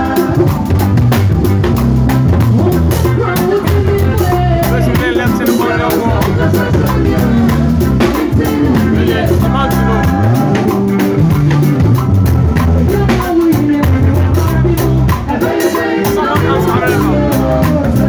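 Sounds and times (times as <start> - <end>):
drum kit with busy cymbals: 0.0 - 18.0
electric bass guitar: 0.0 - 18.0
person singing: 2.6 - 11.3, 12.7 - 18.0.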